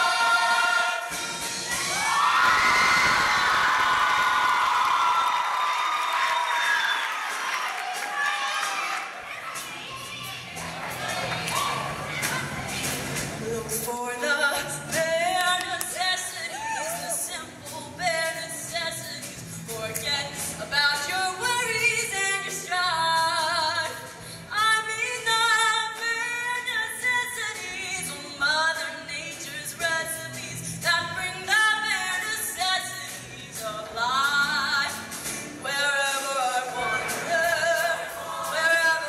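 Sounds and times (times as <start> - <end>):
choir singing: 0.0 - 1.3, 36.2 - 39.0.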